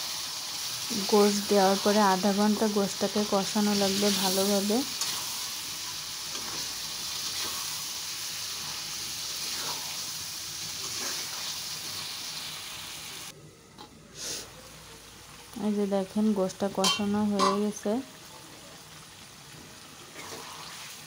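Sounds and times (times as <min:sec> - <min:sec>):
meat sizzling in oil: 0:00.0 - 0:13.3, 0:14.2 - 0:21.0
spatula scraping pan: 0:04.9 - 0:07.8.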